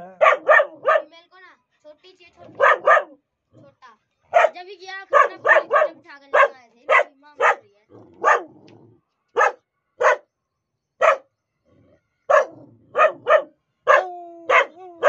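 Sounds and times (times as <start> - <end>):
dog barking: 0.0 - 1.1, 2.4 - 3.2, 4.3 - 8.7, 9.4 - 10.3, 11.0 - 11.3, 12.3 - 14.8.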